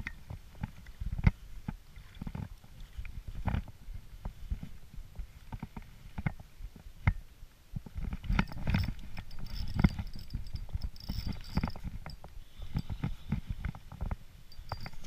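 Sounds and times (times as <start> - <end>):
wind on microphone: 0.0 - 15.0
fishing reel whirring: 8.4 - 13.4, 14.5 - 15.0.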